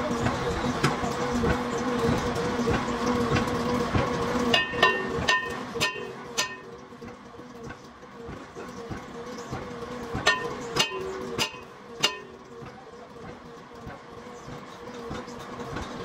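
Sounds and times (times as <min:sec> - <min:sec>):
low machine hum: 0:00.0 - 0:16.0
hammer striking metal drum: 0:04.5 - 0:06.7, 0:10.2 - 0:12.4.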